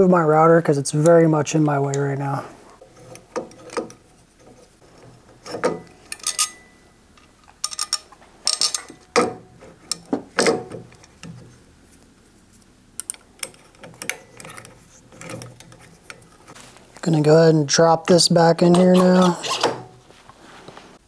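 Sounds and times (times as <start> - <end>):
hex key turning metal bolts: 5.4 - 11.4, 13.0 - 16.2.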